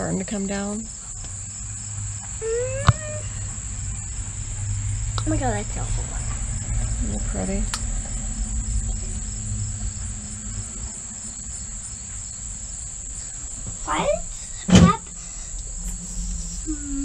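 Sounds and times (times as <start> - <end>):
insects trilling: 0.0 - 17.0
low rumble: 0.0 - 17.0.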